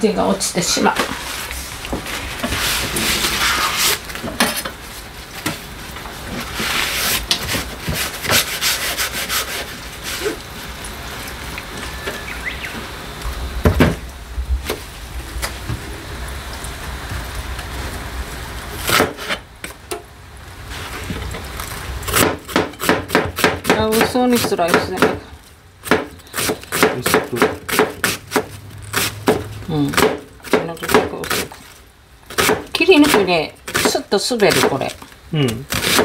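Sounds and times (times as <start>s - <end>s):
knife slicing onion: 18.8s - 19.4s, 22.1s - 25.2s, 25.8s - 31.6s, 32.3s - 34.8s, 35.5s - 36.0s.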